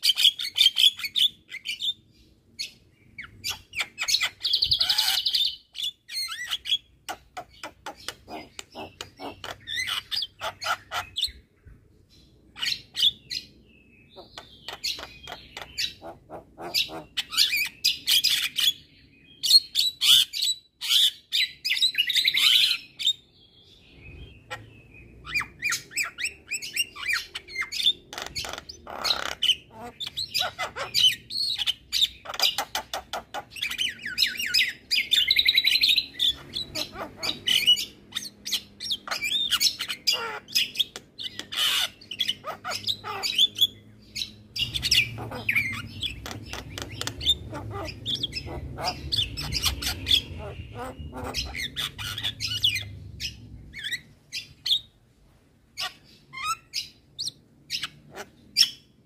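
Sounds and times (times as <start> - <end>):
bird singing clicks and squawks: 3.2 - 11.4, 14.2 - 18.6, 25.6 - 37.9, 38.5 - 52.9.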